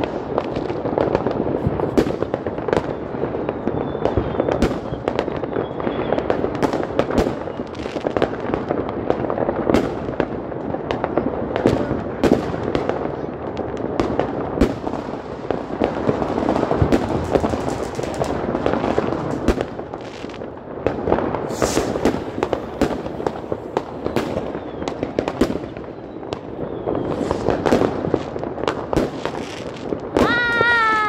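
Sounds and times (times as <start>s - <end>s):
fireworks bangs and crackling: 0.0s - 31.0s
firework hiss: 14.7s - 31.0s.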